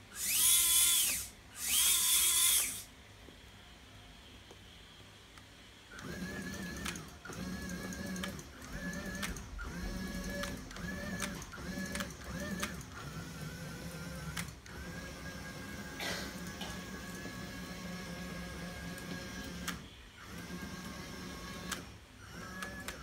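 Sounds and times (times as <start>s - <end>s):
hydraulic pump whining: 0.0s - 2.9s.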